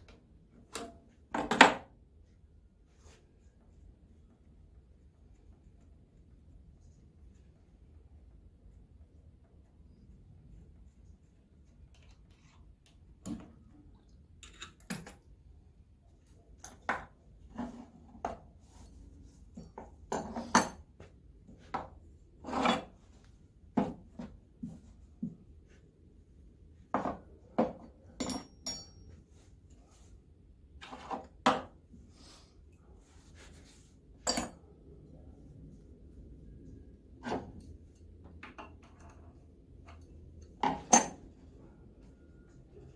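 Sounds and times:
metal tools clinking on workbench: 0:28.1 - 0:29.2.

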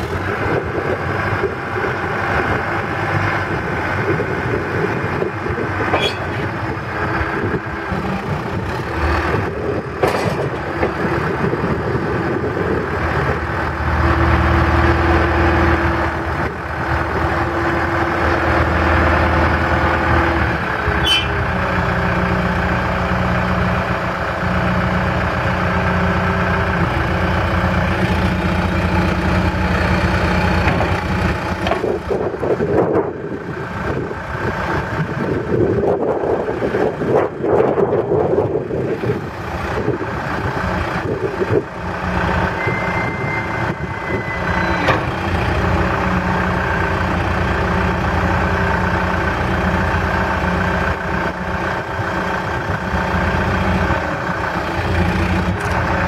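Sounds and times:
hydraulics working: 0:00.0 - 0:23.0
diesel engine running: 0:00.0 - 0:56.0.

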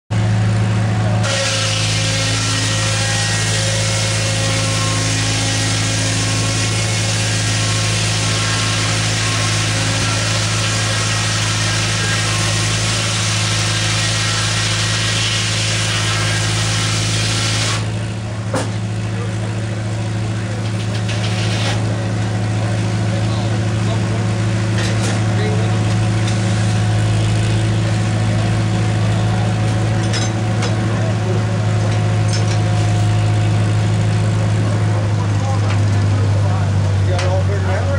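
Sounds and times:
tractor engine running under load: 0:00.1 - 0:37.9
sawmill blade cutting through log: 0:01.2 - 0:36.4.

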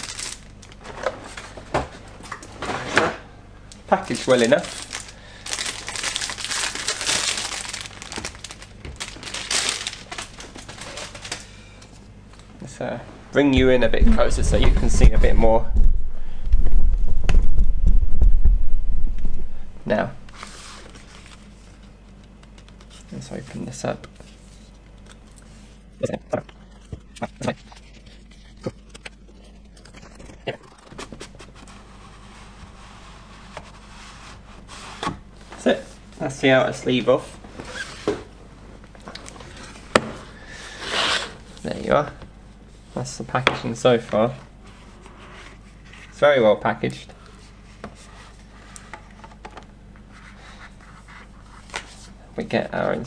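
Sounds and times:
cardboard box crinkling and rustling: 0:04.2 - 0:11.4.

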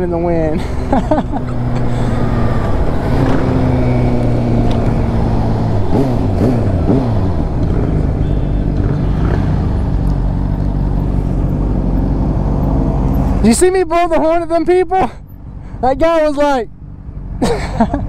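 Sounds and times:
motorcycle engine running: 0:01.4 - 0:13.4.

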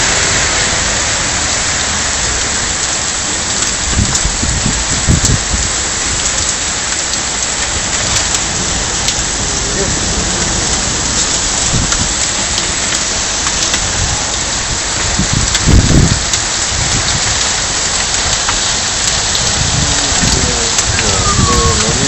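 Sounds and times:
heavy rain splashing on water: 0:00.0 - 0:22.0
low rumble: 0:18.9 - 0:22.0.

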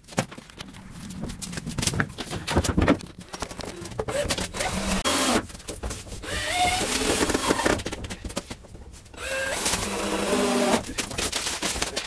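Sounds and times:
cordless drill whining: 0:06.2 - 0:07.7, 0:09.2 - 0:10.8.

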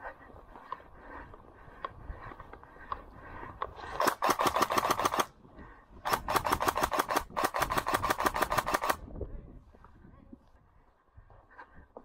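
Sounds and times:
airsoft gun full-auto bursts: 0:03.9 - 0:05.3, 0:06.0 - 0:09.0.

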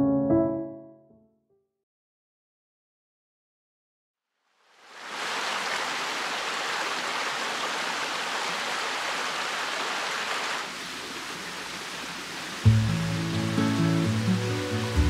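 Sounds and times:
stream babbling over stones: 0:04.7 - 0:13.5.

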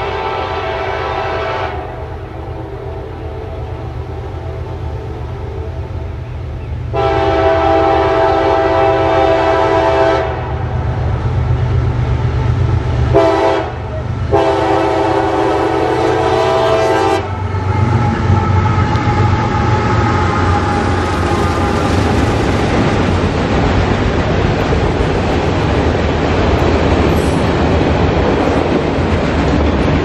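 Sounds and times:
locomotive air horn blasts: 0:00.0 - 0:06.0, 0:06.9 - 0:10.6, 0:13.0 - 0:22.4
locomotive engine rumble: 0:00.0 - 0:30.0.

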